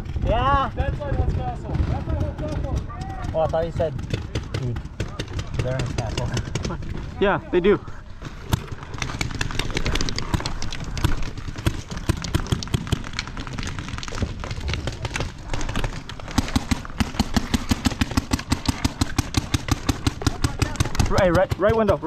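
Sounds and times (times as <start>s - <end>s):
rapid gunfire: 8.4s - 22.0s.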